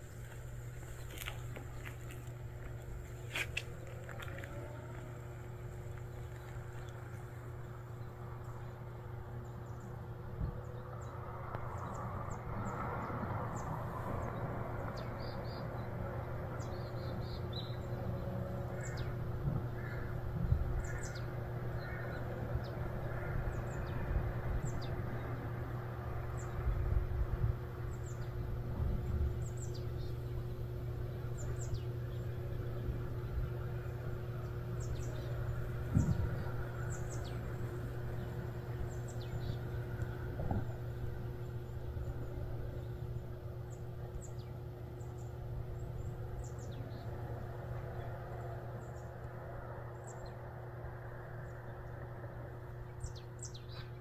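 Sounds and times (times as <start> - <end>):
birds chirping: 0.0 - 54.0
steady low hum: 0.0 - 54.0
repeated bird calls: 11.8 - 50.7.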